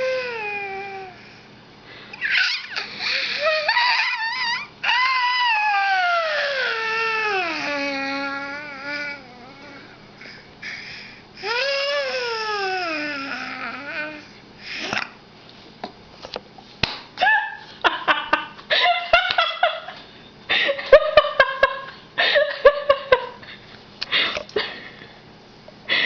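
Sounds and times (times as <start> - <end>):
baby laughing and babbling: 5.7 - 10.0, 11.4 - 15.0
baby sing-song vocalizing: 6.3 - 10.0, 11.4 - 15.0.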